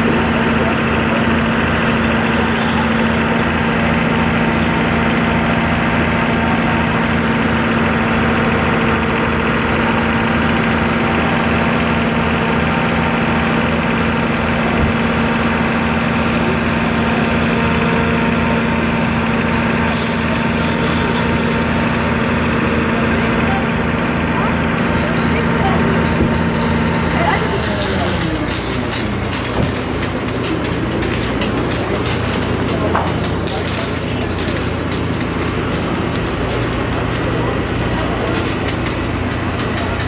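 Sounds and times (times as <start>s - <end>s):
diesel engine running: 0.0s - 40.0s
short hiss: 19.9s - 21.3s.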